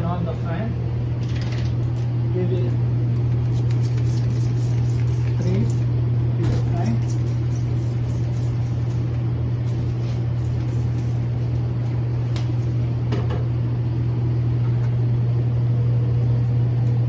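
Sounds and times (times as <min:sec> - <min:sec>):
blower fan humming: 0:00.0 - 0:17.0.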